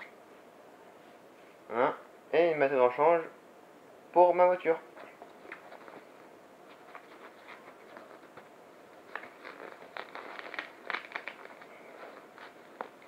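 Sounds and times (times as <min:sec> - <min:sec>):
fabric rustling: 0:05.0 - 0:13.0.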